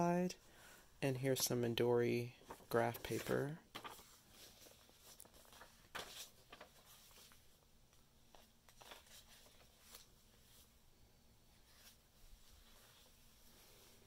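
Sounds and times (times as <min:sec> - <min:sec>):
paper pages turning: 0:02.3 - 0:07.6, 0:08.2 - 0:10.7.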